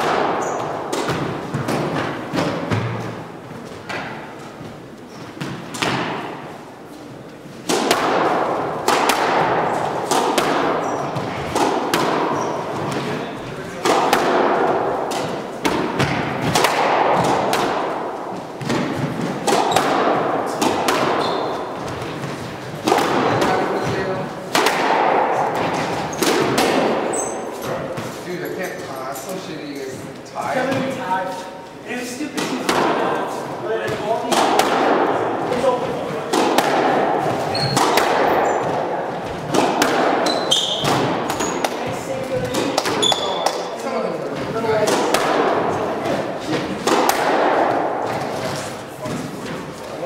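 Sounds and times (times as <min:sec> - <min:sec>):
squash ball hitting racquets and walls: 0:00.0 - 0:50.0
shoes squeaking on hardwood floor: 0:00.4 - 0:05.8, 0:10.8 - 0:11.6, 0:12.2 - 0:13.8, 0:21.0 - 0:24.3, 0:25.6 - 0:26.5, 0:27.1 - 0:31.7, 0:37.2 - 0:39.4, 0:40.1 - 0:44.8.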